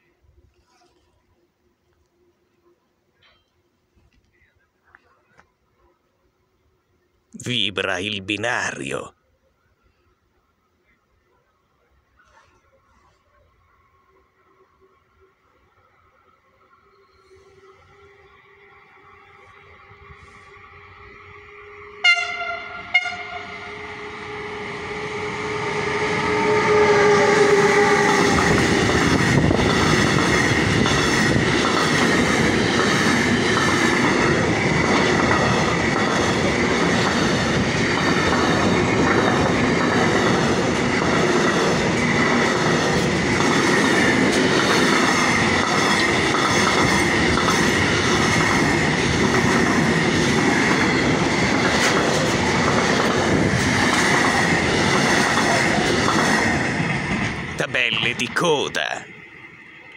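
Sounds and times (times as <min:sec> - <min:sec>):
freight train rumble: 0:16.9 - 0:59.9
locomotive horn blasts: 0:22.0 - 0:24.1, 0:25.1 - 0:28.4
steady high tone: 0:57.6 - 0:59.9.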